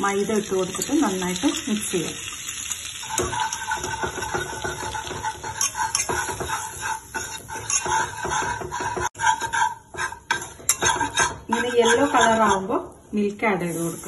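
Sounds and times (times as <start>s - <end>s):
butter and flour sizzling in pan: 0.0s - 14.0s.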